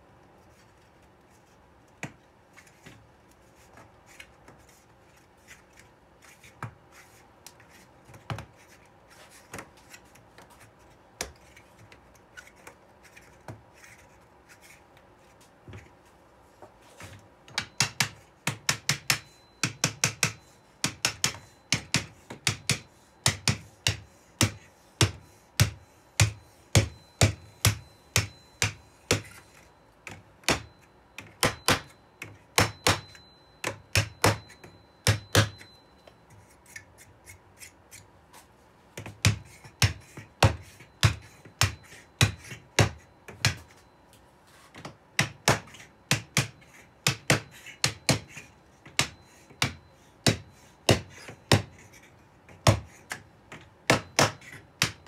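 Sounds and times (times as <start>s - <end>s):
hammer tapping wooden block: 17.5s - 29.4s.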